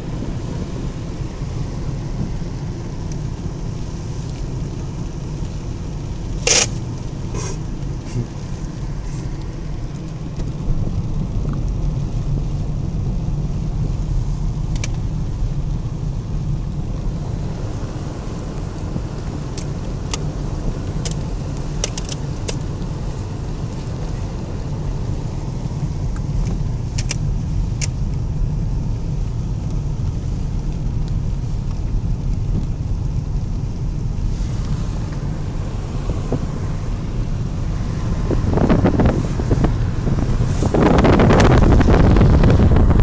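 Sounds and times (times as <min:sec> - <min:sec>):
wind noise on microphone: 0:00.0 - 0:04.1, 0:08.0 - 0:43.0
engine and tyre rumble: 0:00.0 - 0:43.0
small clicks: 0:14.7 - 0:15.0, 0:26.2 - 0:27.2.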